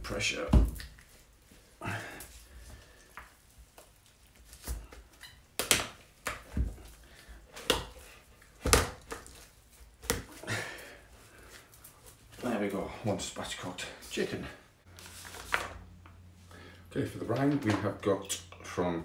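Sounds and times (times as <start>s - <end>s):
chicken cracking and thumping: 7.5s - 9.4s.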